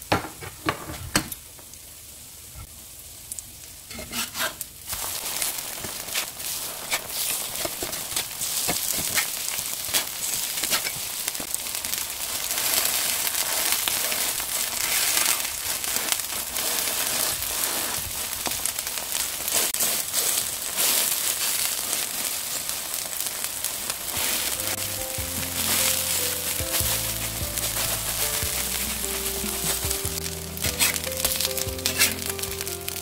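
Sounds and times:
oil crackling and popping: 0.1 - 33.0
pancakes sizzling in oil: 1.3 - 33.0.

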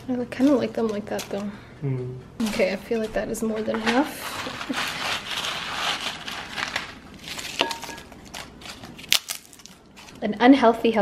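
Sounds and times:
chips crunching by hand: 4.6 - 10.2.

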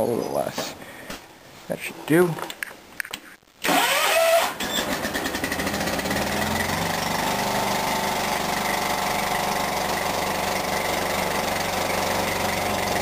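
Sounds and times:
lawn tractor engine running: 4.6 - 13.0.

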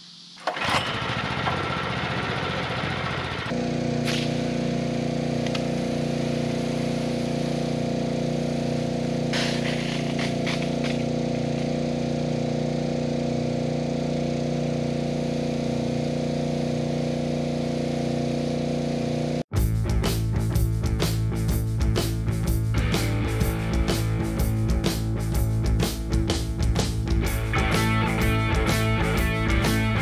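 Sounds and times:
small gasoline pump engine running: 0.4 - 19.5, 22.8 - 30.0
hissing bursts: 4.0 - 11.6.

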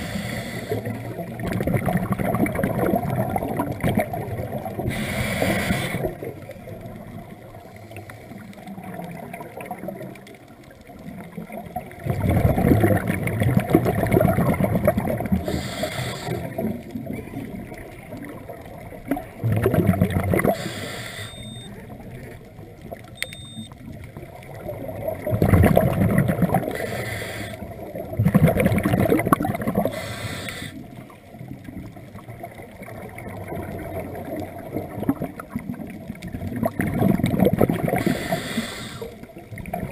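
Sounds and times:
regulator inhalation hiss: 0.0 - 1.0, 4.9 - 6.1, 15.4 - 16.5, 20.5 - 21.6, 26.8 - 27.6, 29.9 - 30.8, 38.0 - 39.2
bubbling underwater exhalations: 0.0 - 6.5, 11.1 - 21.7, 24.6 - 27.0, 27.6 - 30.9, 32.8 - 39.9.

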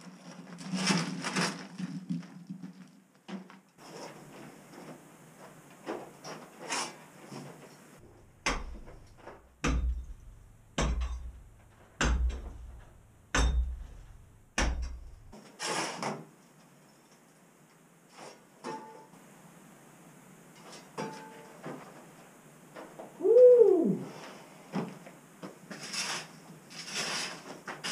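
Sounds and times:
tool striking concrete: 8.4 - 15.4.

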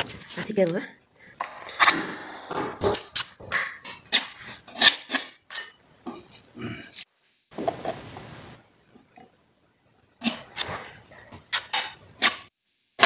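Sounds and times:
knife scraping compound on wall: 2.8 - 5.8, 10.2 - 12.5.

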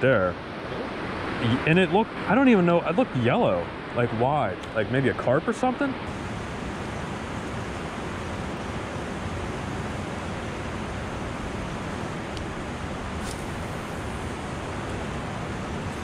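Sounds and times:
turbulent river water rushing: 5.8 - 16.0.

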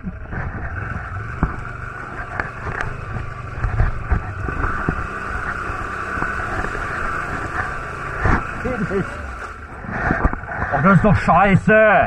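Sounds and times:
quad bike engine running: 0.0 - 11.3.

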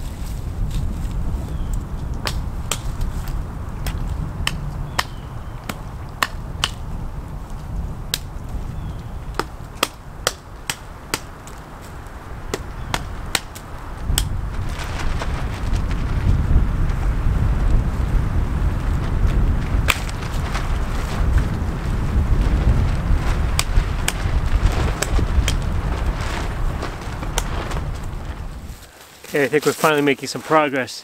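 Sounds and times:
wind rumble on microphone: 0.0 - 28.9
wooden chops and snaps: 2.1 - 3.1, 3.8 - 6.8, 8.1 - 8.3, 9.3 - 11.6, 12.5 - 14.3, 19.9 - 20.2.

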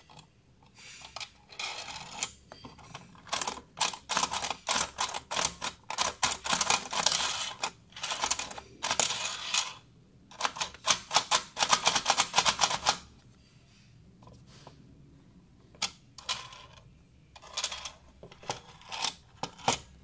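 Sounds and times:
toy motor clattering plastic clicks: 3.3 - 13.0.

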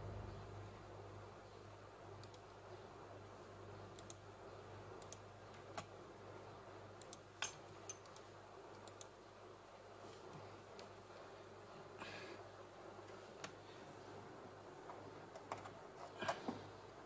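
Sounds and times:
faint hum: 0.0 - 17.0
computer mouse clicking: 2.2 - 2.5, 4.0 - 4.2, 5.0 - 5.2, 7.0 - 7.2, 8.0 - 9.2.

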